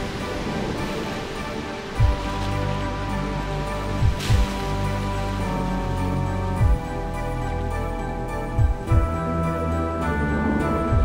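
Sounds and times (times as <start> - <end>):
background music with held notes: 0.0 - 11.0
deep low thump: 4.0 - 4.6, 8.6 - 9.2.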